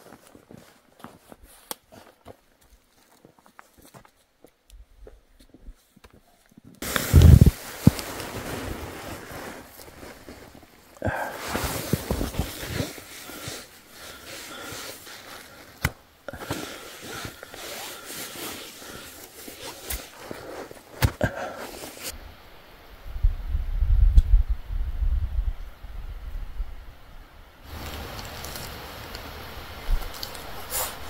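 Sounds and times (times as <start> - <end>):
snow crunching and scraping: 0.0 - 4.0, 6.8 - 22.2, 27.6 - 31.0.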